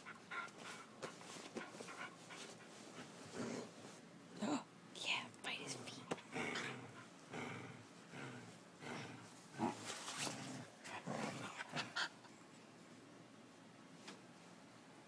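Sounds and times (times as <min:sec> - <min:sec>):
dogs play-growling and grunting: 0:00.0 - 0:04.6, 0:06.2 - 0:12.3.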